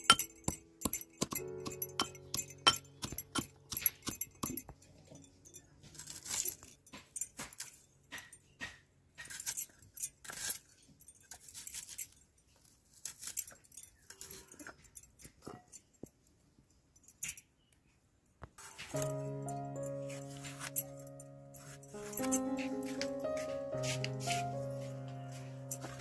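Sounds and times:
metal pestle clinking in mortar: 0.0s - 5.2s.

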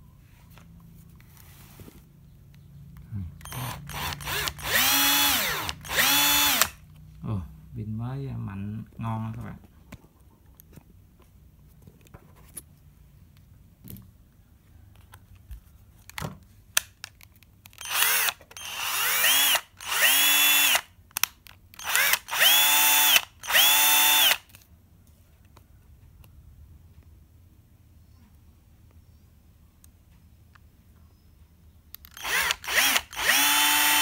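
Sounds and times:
impact driver motor whine: 3.4s - 6.8s, 17.8s - 20.8s, 21.8s - 24.4s, 32.1s - 34.0s.

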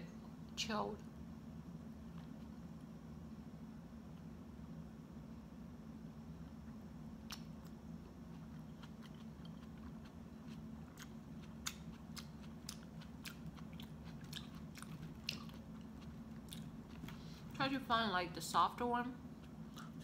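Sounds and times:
person chewing: 6.6s - 17.6s, 19.4s - 20.0s.

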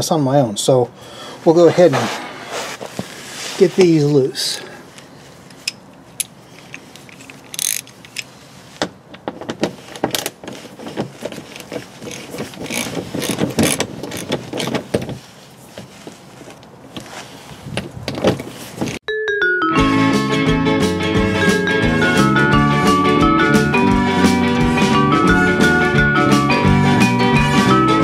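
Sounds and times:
ratchet wrench clicking: 5.5s - 8.3s, 12.1s - 14.7s.

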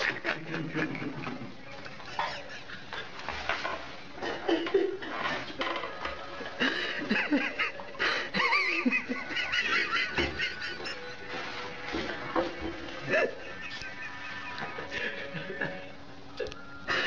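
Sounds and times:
person laughing: 0.0s - 3.2s, 6.6s - 12.1s, 13.0s - 17.0s.

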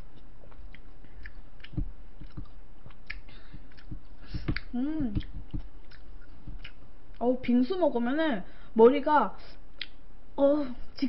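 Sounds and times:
mouth chewing sounds: 0.0s - 7.2s.

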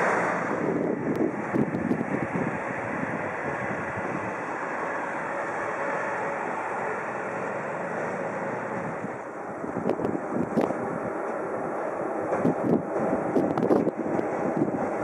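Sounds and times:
wind on microphone: 0.0s - 4.8s, 8.6s - 15.0s
train wheels rumbling on rails: 0.0s - 15.0s.

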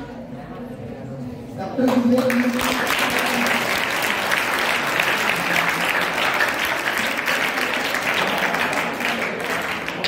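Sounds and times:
audience clapping: 1.8s - 10.0s.

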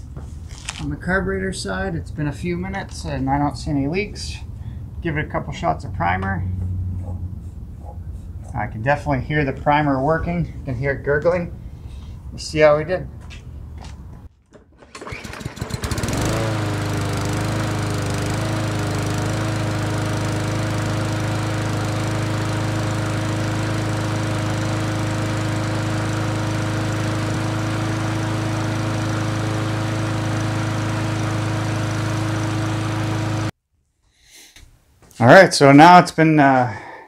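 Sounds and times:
push mower engine starting and running: 14.3s - 33.5s.

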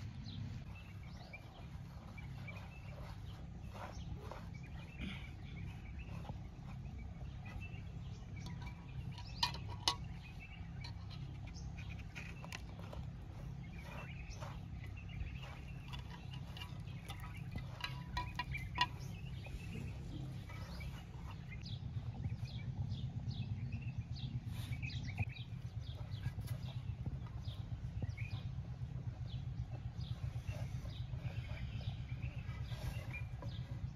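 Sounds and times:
hands kneading dough: 0.0s - 9.2s, 10.1s - 22.5s
faint bird chirps: 0.0s - 33.9s
low steady rumble: 0.0s - 33.9s.

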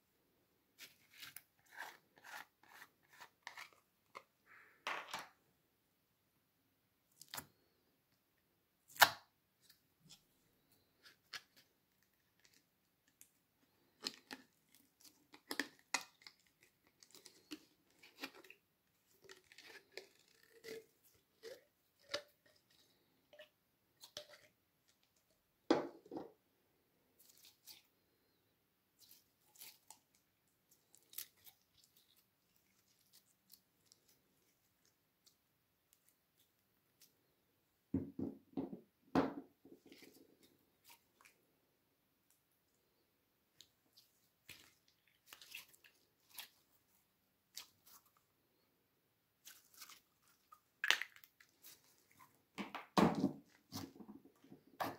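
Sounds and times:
sticky slime crackles: 43.6s - 46.8s.

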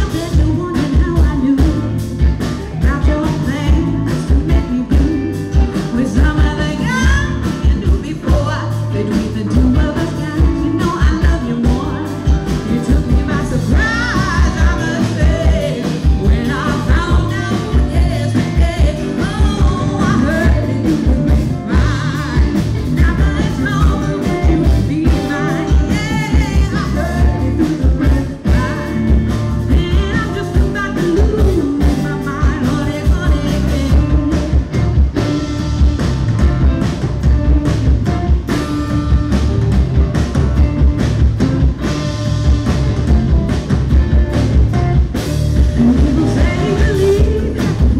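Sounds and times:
woman singing: 0.0s - 35.3s, 45.6s - 47.9s
live rock band playing: 0.0s - 47.9s.

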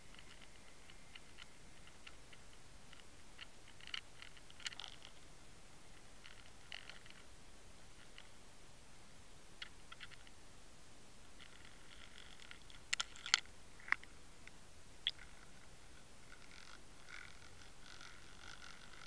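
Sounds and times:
faint underwater clicks: 0.0s - 5.2s
steady hiss: 0.0s - 19.0s.

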